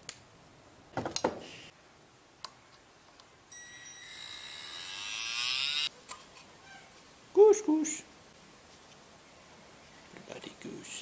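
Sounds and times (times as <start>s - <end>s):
small motor whine: 3.6s - 5.9s.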